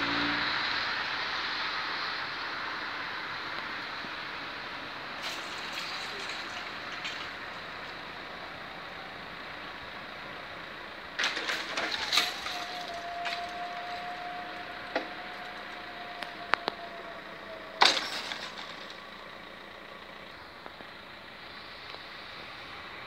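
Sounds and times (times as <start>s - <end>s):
barrier drive clatter: 5.2s - 9.7s, 11.0s - 19.5s
barrier motor humming: 5.3s - 19.0s.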